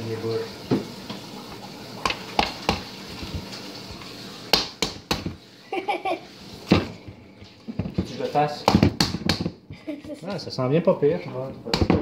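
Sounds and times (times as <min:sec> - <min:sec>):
hands slapping ground meat: 0:04.5 - 0:05.4, 0:08.6 - 0:09.6.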